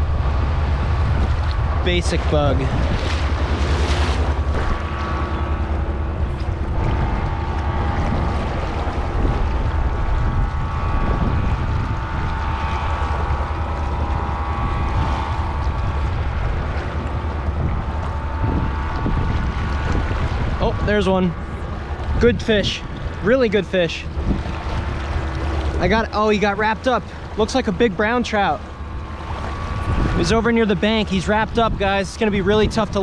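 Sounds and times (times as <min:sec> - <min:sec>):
construction machinery hum: 0:00.0 - 0:33.0
flowing river water: 0:00.0 - 0:33.0
wind buffeting microphone: 0:00.0 - 0:33.0.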